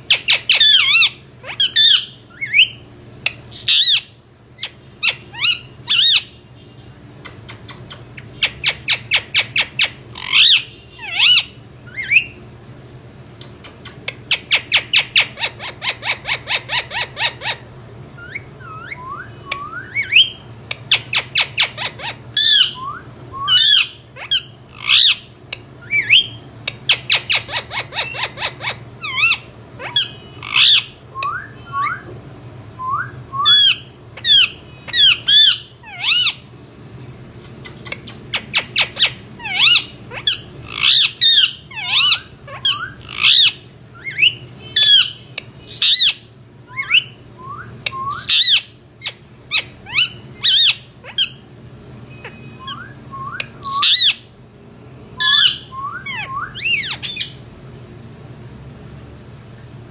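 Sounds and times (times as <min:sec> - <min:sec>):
parakeet squawking and chirping: 0:00.0 - 0:06.5, 0:07.2 - 0:12.4, 0:13.4 - 0:32.1, 0:32.8 - 0:36.6, 0:37.5 - 0:54.4, 0:55.2 - 0:57.5.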